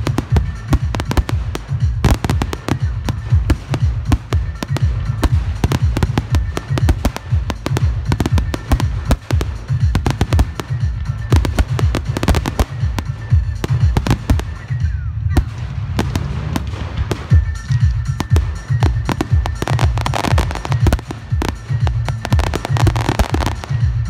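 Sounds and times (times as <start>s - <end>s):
deep rolling rumble: 15.2s - 17.5s.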